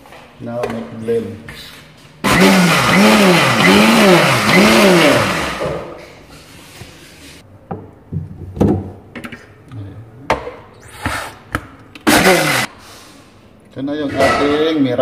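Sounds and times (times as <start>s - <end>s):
blender motor running: 2.2s - 5.9s, 12.1s - 12.7s.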